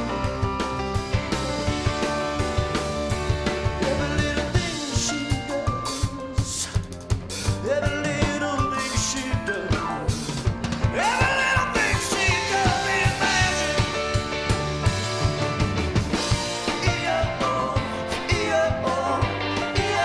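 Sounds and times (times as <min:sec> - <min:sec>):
electric guitar: 0:00.0 - 0:08.6, 0:09.2 - 0:20.0
bass guitar: 0:00.0 - 0:20.0
drum kit beat: 0:00.0 - 0:20.0
man singing: 0:03.6 - 0:14.2, 0:16.6 - 0:20.0.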